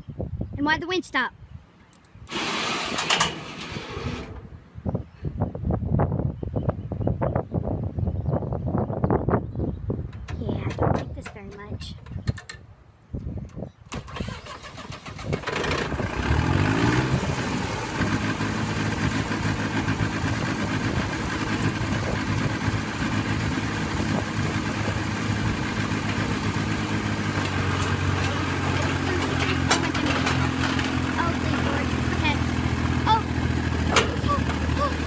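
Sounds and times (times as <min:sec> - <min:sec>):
dozer engine revving: 0:02.3 - 0:04.6, 0:13.9 - 0:35.0.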